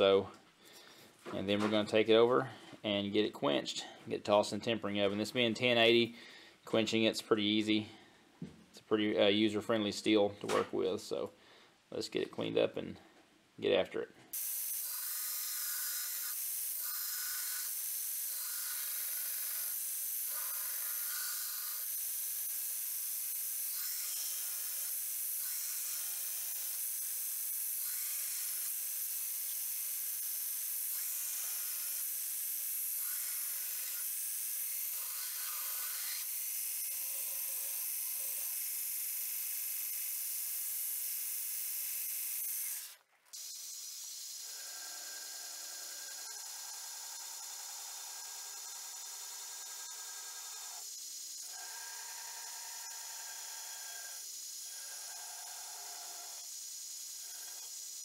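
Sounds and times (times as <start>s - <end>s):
belt grinder whining: 14.4s - 58.0s.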